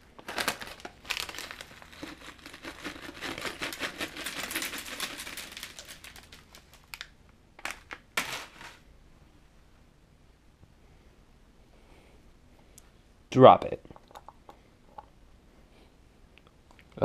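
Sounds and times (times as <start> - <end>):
cardboard box crinkling: 0.2 - 7.0.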